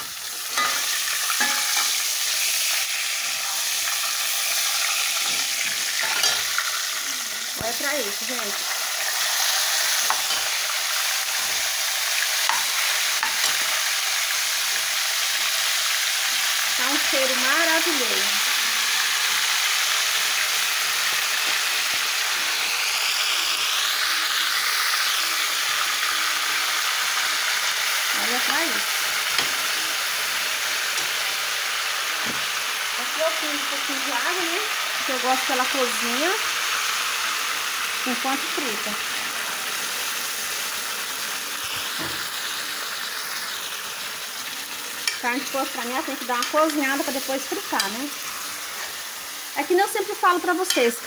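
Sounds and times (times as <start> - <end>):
meat sizzling in hot fat: 0.0 - 51.0.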